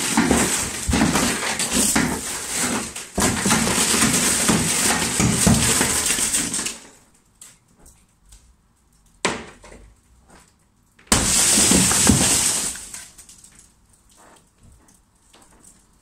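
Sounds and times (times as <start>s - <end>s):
hammer striking glass: 11.1s - 12.8s.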